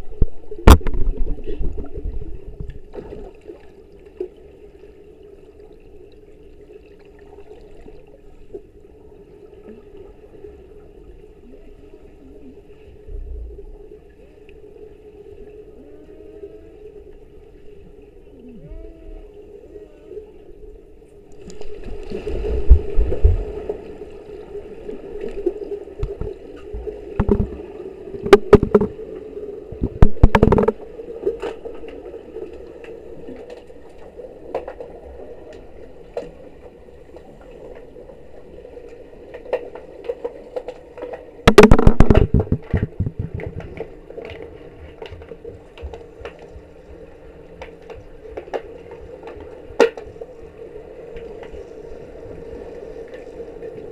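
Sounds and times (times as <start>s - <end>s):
underwater clicks and knocks: 0.0s - 3.2s, 25.3s - 29.0s, 29.7s - 31.9s, 39.3s - 46.6s, 47.5s - 50.2s
underwater low hum: 0.0s - 53.9s.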